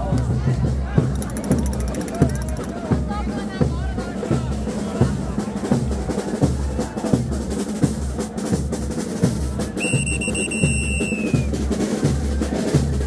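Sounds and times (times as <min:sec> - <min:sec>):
bass drum and snare beat: 0:00.0 - 0:13.0
high whistle blown: 0:09.8 - 0:11.5.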